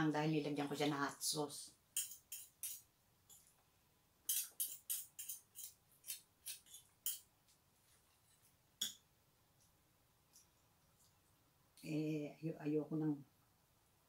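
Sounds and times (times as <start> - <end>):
metal cutlery clinking on a plate: 2.0 - 3.4, 4.3 - 7.3.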